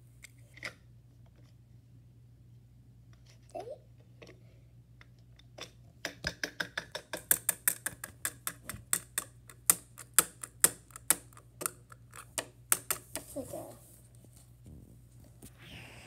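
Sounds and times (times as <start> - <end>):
plastic toy clicking on plastic: 5.6 - 13.2.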